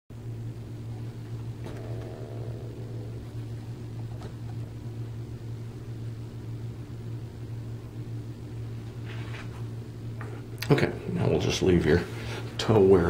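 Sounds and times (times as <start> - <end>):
low machine hum: 0.1 - 13.0
faint steady tones: 1.6 - 4.8.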